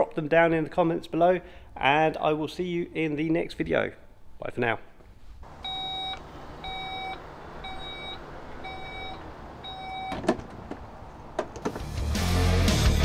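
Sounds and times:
tailgate warning beeps: 5.4s - 11.8s
tailgate latching clunk: 5.5s - 12.0s.

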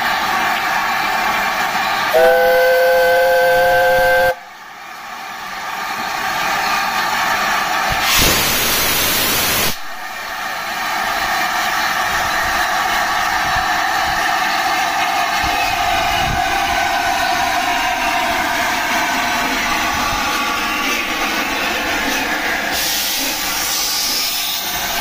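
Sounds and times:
steam locomotive chime whistle: 2.0s - 4.5s
steam hissing: 6.2s - 14.4s, 15.3s - 25.0s.

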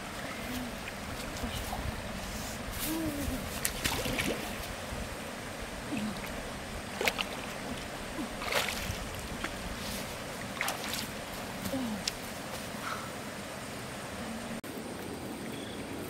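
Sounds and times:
river water flowing: 0.0s - 16.0s
fish splashing in water: 5.9s - 9.7s, 10.4s - 11.3s.

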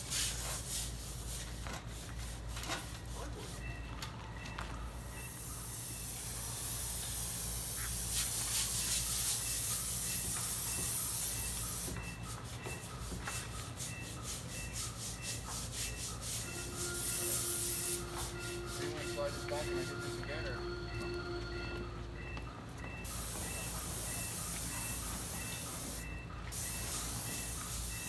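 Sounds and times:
steady low hum: 4.3s - 27.8s
paint sprayer hissing: 5.2s - 20.2s, 23.0s - 28.0s.

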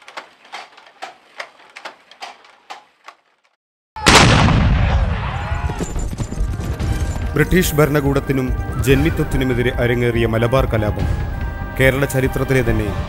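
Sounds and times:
wooden handloom clacking: 0.0s - 3.6s
explosion with rumble: 4.0s - 6.2s.

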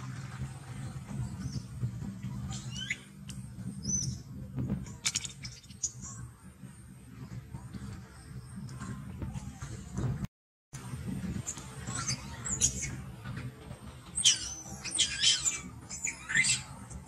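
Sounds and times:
low steady rumble: 0.0s - 17.0s
high chirping animal calls: 2.4s - 4.2s, 14.2s - 17.0s.

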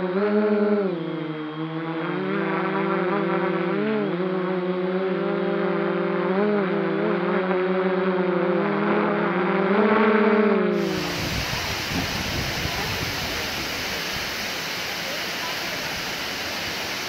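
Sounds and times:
drone propellers humming: 10.8s - 17.0s.

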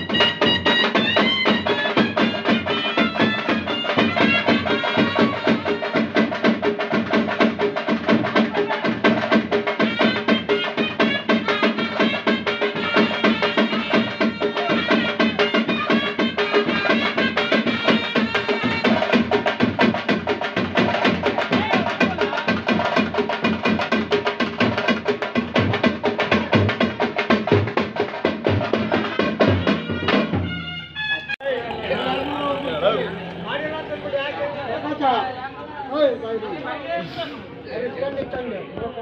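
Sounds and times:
music with fast drumming: 0.0s - 30.8s.

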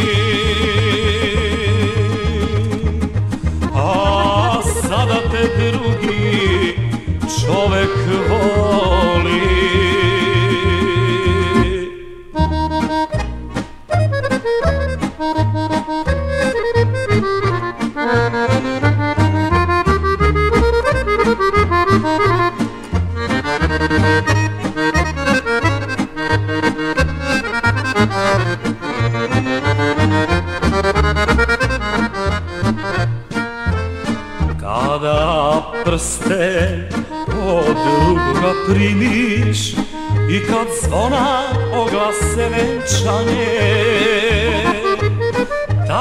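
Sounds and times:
band bass beat: 0.0s - 46.0s
accordion playing quick runs: 12.4s - 46.0s.

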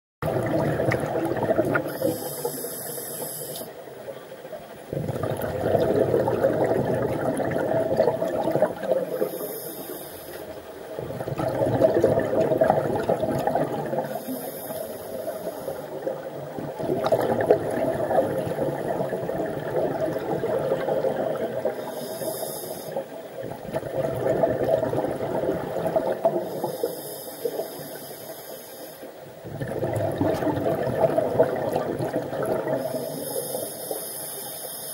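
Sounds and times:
bubbling exhaust: 0.2s - 2.8s, 4.9s - 9.9s, 10.9s - 22.6s, 23.4s - 26.9s, 29.4s - 33.8s
diver inhaling through regulator: 1.8s - 3.8s, 9.0s - 10.5s, 14.0s - 16.2s, 21.6s - 23.2s, 26.4s - 29.2s, 32.7s - 34.9s.

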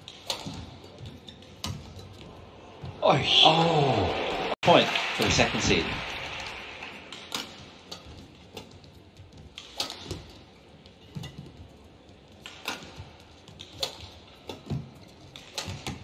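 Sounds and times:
rackets hitting shuttlecock: 0.0s - 2.9s, 5.9s - 10.5s, 12.3s - 16.0s.

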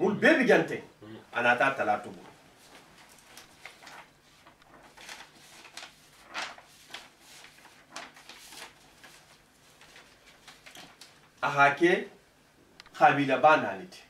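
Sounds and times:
paper rustling: 2.1s - 11.4s.

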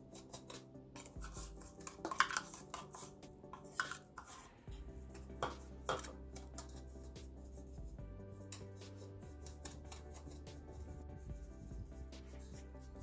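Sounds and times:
quiet background music: 0.0s - 13.0s.

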